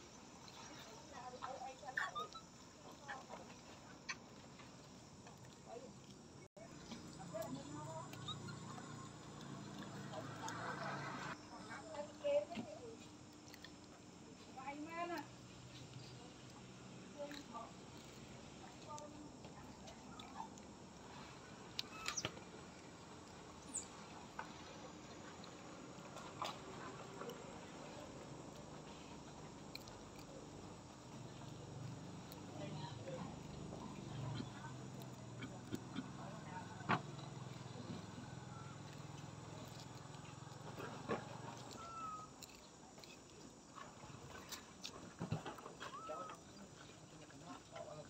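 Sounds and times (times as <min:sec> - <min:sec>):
baby monkey squeaking: 0:08.0 - 0:09.2.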